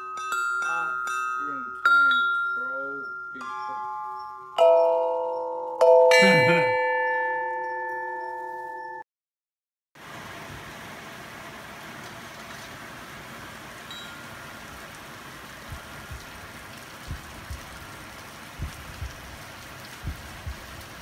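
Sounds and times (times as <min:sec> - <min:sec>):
steady hiss: 0:10.0 - 0:21.0
soft low double thumps: 0:15.7 - 0:16.4, 0:17.0 - 0:17.8, 0:18.6 - 0:19.4, 0:20.0 - 0:20.8.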